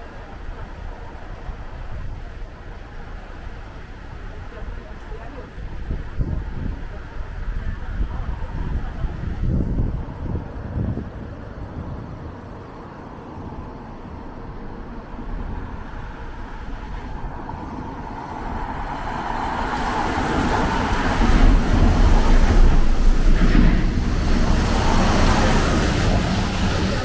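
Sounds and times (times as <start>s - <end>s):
cars passing on wet road: 0.0s - 27.0s
heavy truck passing: 9.4s - 27.0s.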